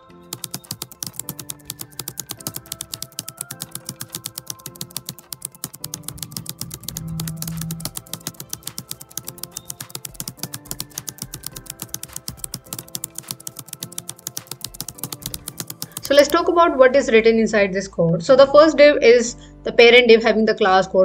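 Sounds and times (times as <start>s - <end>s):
background music: 0.0s - 21.0s
computer keyboard typing: 0.2s - 16.6s.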